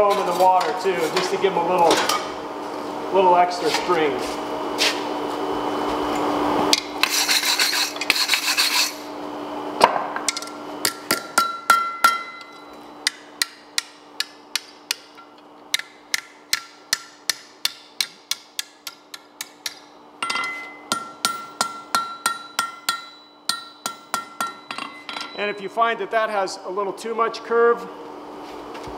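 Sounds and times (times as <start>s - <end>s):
scratchy scraping: 7.0s - 9.0s
hammer striking steel on anvil: 10.3s - 25.7s.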